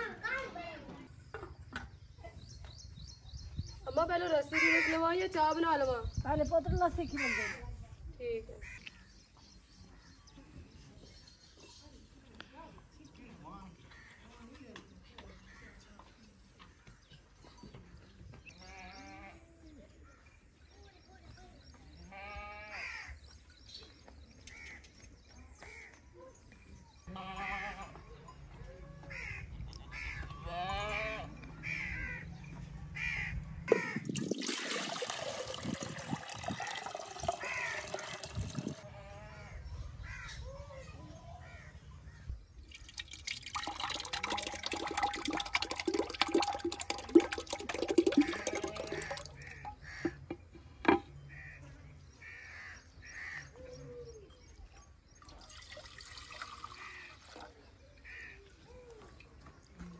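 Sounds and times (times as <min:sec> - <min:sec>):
sheep and goats bleating: 0:22.1 - 0:22.9, 0:27.1 - 0:28.0, 0:29.7 - 0:31.4
curd pouring into pot: 0:33.9 - 0:38.8, 0:42.7 - 0:50.4, 0:55.2 - 0:57.6.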